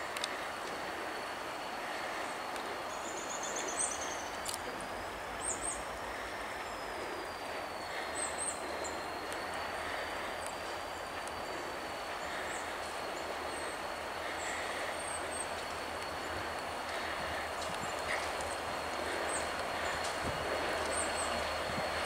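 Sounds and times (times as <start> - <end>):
diesel locomotive rumbling hiss: 0.0 - 22.0
birds chirping: 5.3 - 22.0.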